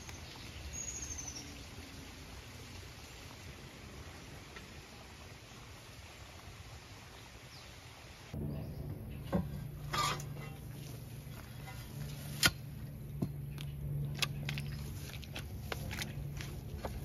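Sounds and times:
low steady hum: 8.3s - 17.0s
wood scraping: 9.4s - 13.3s.

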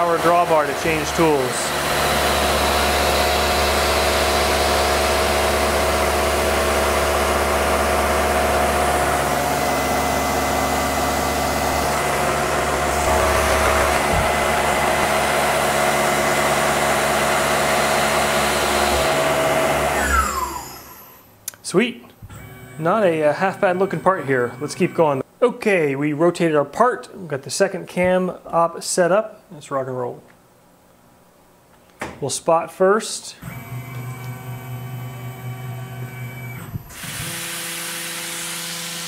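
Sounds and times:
mill spindle whine: 0.0s - 21.3s, 22.2s - 25.2s, 33.4s - 39.0s.

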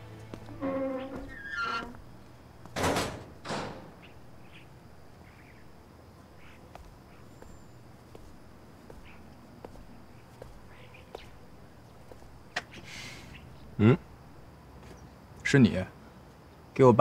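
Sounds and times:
faint bird chirps: 4.0s - 14.1s.

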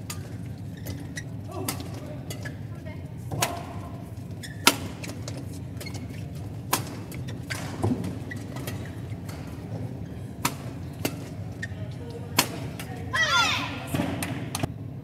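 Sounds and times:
rackets striking shuttlecock: 0.0s - 2.6s, 3.3s - 11.6s, 12.3s - 13.0s
steady low hum: 0.0s - 15.0s.

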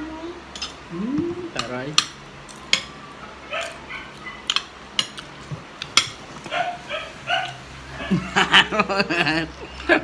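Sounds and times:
cutlery clinking against plates: 4.4s - 6.2s.

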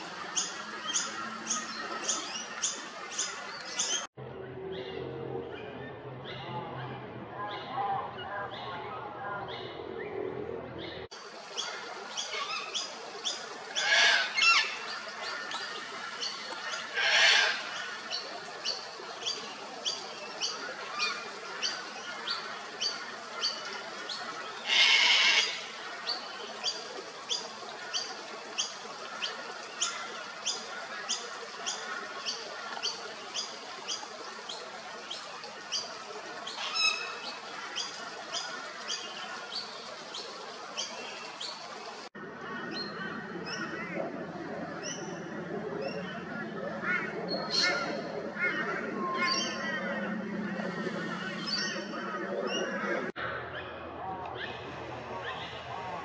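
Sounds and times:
cockatoo screeching: 24.7s - 25.6s.

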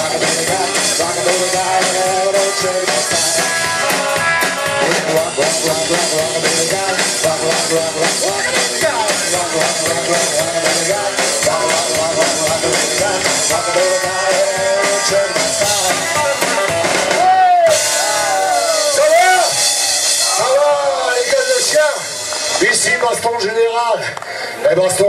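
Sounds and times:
man singing: 0.0s - 17.9s
electric guitar: 0.0s - 23.2s
drum kit: 0.0s - 23.8s.

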